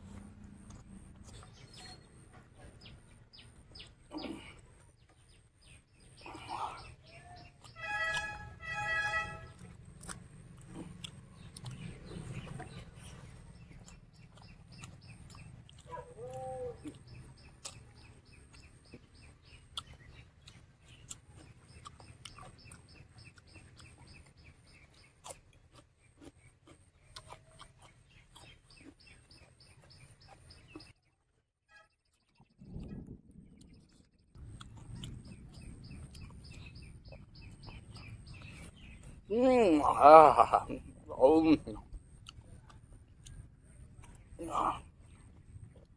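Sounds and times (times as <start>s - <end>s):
small bird chirping: 0.7s - 45.9s
person chewing food: 9.4s - 31.0s, 33.5s - 39.3s, 41.7s - 45.9s.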